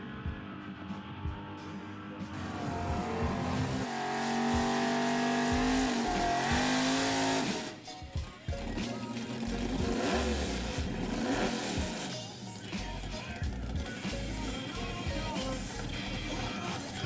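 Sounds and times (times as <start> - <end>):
car engine revving high: 2.3 - 7.8, 9.4 - 12.1.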